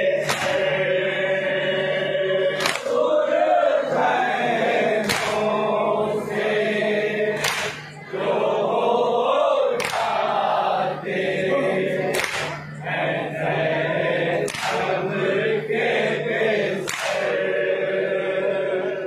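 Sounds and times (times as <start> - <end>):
men chanting in unison: 0.0 - 19.0
chest slaps: 0.2 - 0.7, 2.6 - 3.0, 5.0 - 5.5, 7.4 - 7.9, 9.8 - 10.1, 12.2 - 12.6, 14.5 - 14.8, 16.8 - 17.2.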